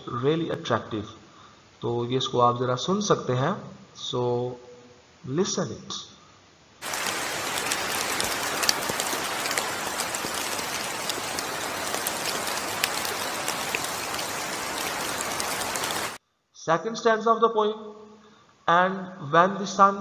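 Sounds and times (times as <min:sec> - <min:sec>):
steady rain falling: 0:06.8 - 0:16.2.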